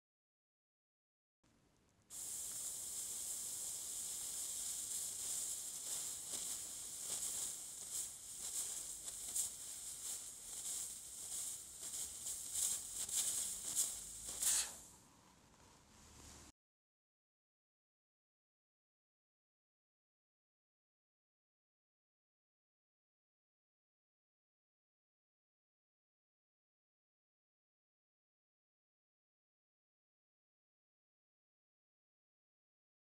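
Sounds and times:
gas jet hissing: 2.1s - 15.0s
applicator tip scraping frost: 14.3s - 14.8s.

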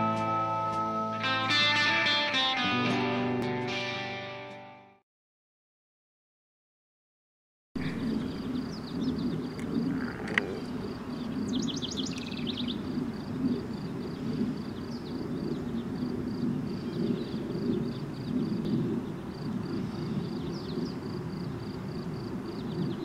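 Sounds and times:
bird chirping: 7.8s - 21.8s, 22.4s - 23.0s
steady low rumble: 7.8s - 23.0s.

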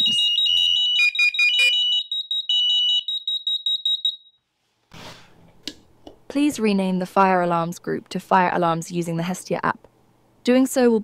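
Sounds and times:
rapid high-pitched alarm beep: 0.0s - 4.4s
steady alarm tone: 0.0s - 4.4s.

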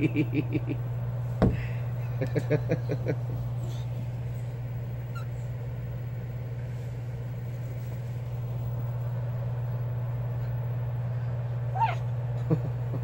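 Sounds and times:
low hum: 0.0s - 13.0s
cockatoo chirp: 5.0s - 5.5s.

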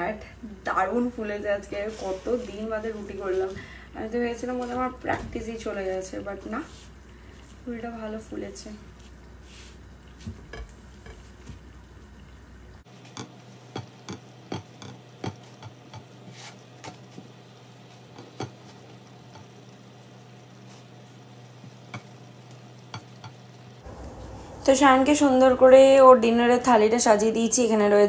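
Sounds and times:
spatula tapping on a pan: 13.1s - 16.2s, 18.1s - 18.6s, 21.9s - 22.2s, 22.9s - 23.4s
steady low hum: 17.4s - 27.6s.

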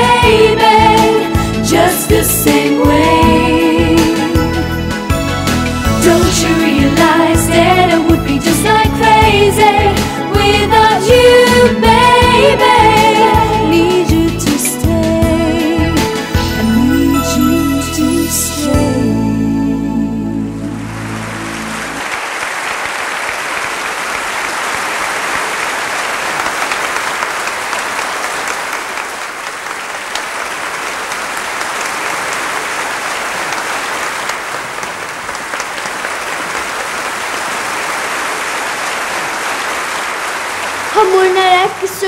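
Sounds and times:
audience applauding: 20.8s - 42.0s.

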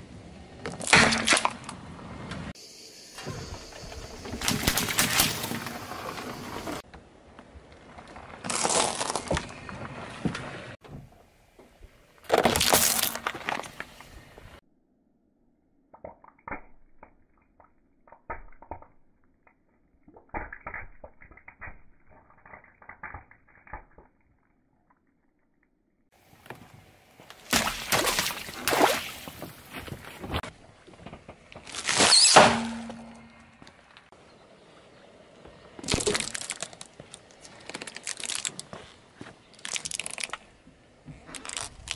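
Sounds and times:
water balloons bursting: 4.2s - 6.8s, 27.4s - 29.8s, 35.8s - 36.9s
tyre crushing brittle objects: 4.3s - 6.8s, 8.1s - 9.8s, 12.2s - 14.0s, 31.6s - 33.3s, 35.8s - 38.9s, 39.5s - 40.5s, 41.2s - 41.9s
water splashing: 27.4s - 30.2s
foil balloon bursting: 31.6s - 33.1s
short squeal: 31.9s - 33.4s.

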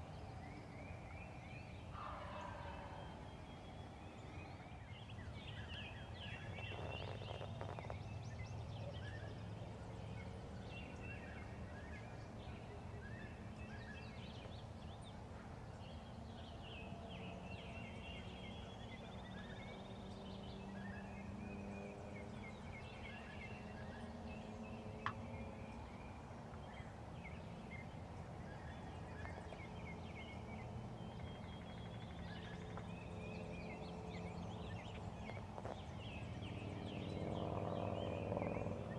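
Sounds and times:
songbirds chirping and singing: 0.0s - 38.9s
distant turkeys gobbling: 2.0s - 3.2s.

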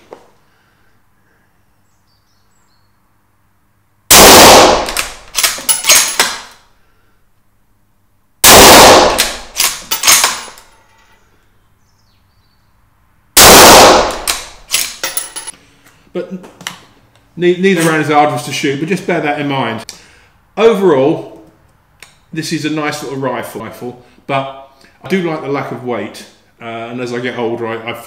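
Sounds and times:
rifle shots: 4.1s - 6.5s, 8.4s - 10.5s, 13.4s - 14.8s
sharp echoing slaps: 4.1s - 6.5s, 8.4s - 10.4s, 13.4s - 14.7s.

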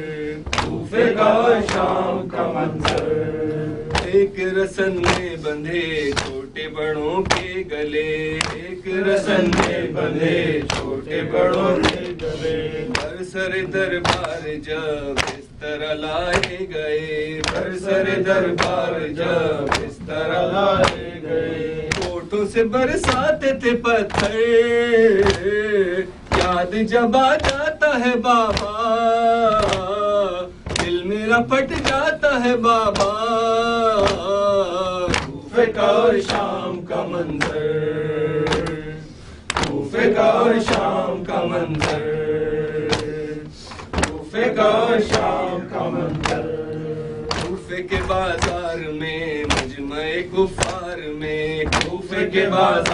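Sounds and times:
men chanting a slow lament: 0.0s - 52.9s
rhythmic chest-beating: 0.0s - 52.9s
sharp hand slaps: 0.4s - 2.0s, 2.8s - 4.2s, 4.8s - 6.4s, 7.2s - 7.6s, 8.4s - 8.7s, 9.3s - 9.9s, 10.5s - 15.5s, 16.3s - 16.6s, 17.4s - 17.8s, 18.4s - 19.0s, 19.6s - 21.2s, 21.9s - 22.2s, 23.0s - 23.3s, 24.0s - 24.4s, 25.2s - 25.6s, 26.3s - 26.6s, 27.3s - 27.7s, 28.4s - 28.8s, 29.5s - 30.0s, 30.6s - 31.0s, 31.7s - 32.1s, 32.8s - 33.2s, 34.0s - 34.4s, 35.0s - 35.4s, 36.1s - 36.5s, 37.2s - 37.7s, 38.4s - 38.8s, 39.5s - 39.9s, 40.5s - 41.0s, 41.6s - 42.1s, 42.8s - 46.5s, 47.3s - 48.8s, 49.4s - 49.9s, 50.5s - 50.9s, 51.6s - 52.9s.

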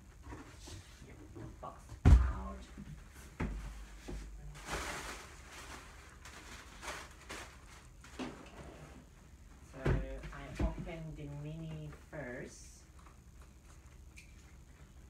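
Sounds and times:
packing material rustling: 4.5s - 8.2s.

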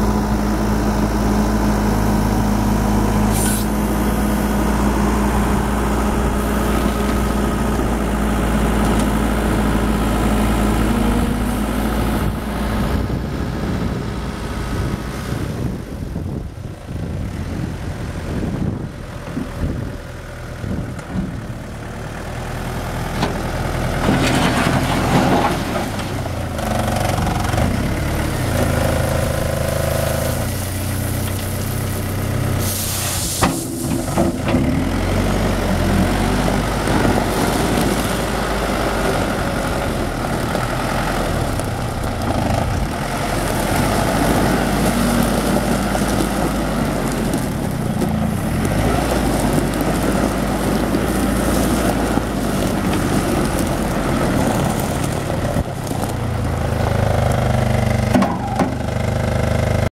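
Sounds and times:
tyres driving over gravel: 0.0s - 14.6s, 20.4s - 59.9s
diesel engine revving: 0.0s - 59.9s
short hiss: 3.3s - 3.8s, 32.6s - 34.1s.

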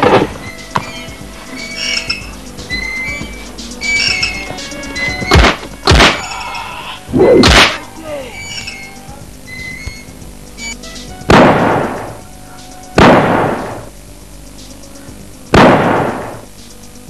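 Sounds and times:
pistol gunshots: 0.0s - 0.4s, 5.3s - 6.3s, 7.4s - 7.9s, 11.3s - 12.0s, 13.0s - 13.8s, 15.5s - 16.4s.

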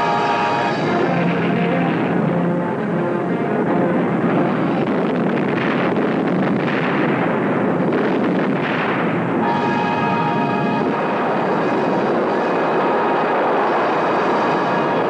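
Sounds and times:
orchestral music: 0.0s - 4.8s, 9.4s - 15.0s
rumbling explosion: 0.0s - 15.0s.

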